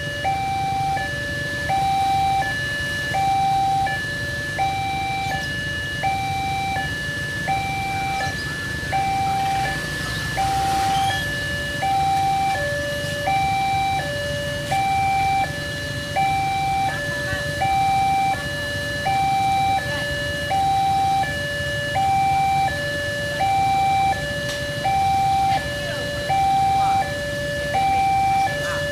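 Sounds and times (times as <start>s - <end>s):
two-tone crossing alarm: 0.0s - 28.9s.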